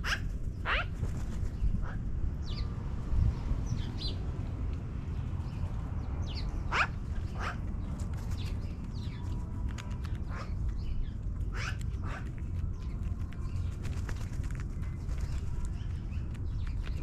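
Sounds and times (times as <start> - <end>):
magpies calling: 0.0 - 2.6, 6.2 - 14.0
steady low rumble: 0.0 - 17.0.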